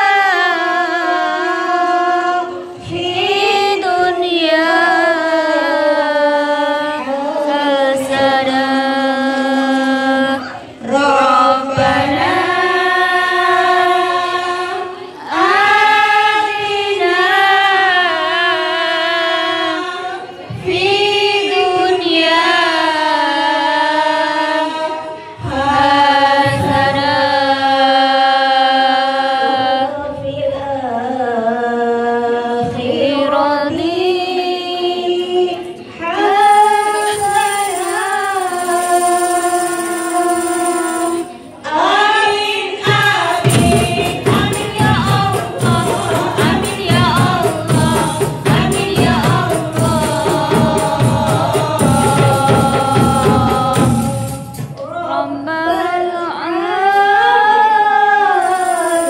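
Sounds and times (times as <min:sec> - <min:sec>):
women's group singing in unison: 0:00.0 - 0:59.0.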